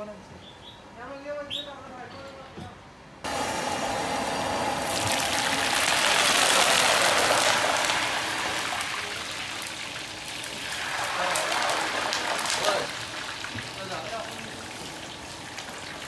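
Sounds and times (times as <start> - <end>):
food deep-frying in oil: 4.6 - 16.0.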